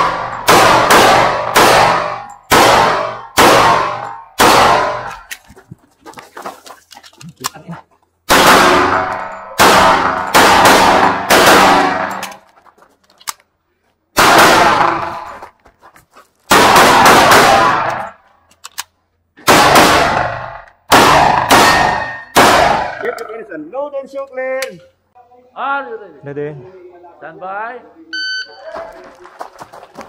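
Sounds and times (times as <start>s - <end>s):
pistol shots ringing: 0.0s - 5.3s, 8.3s - 12.4s, 14.2s - 15.3s, 16.5s - 18.2s, 19.4s - 23.1s.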